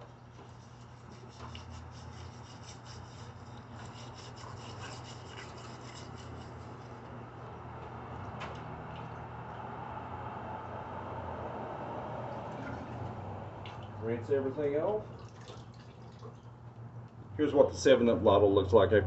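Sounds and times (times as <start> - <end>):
gritty scrubbing of glass bottle: 0.4 - 7.1.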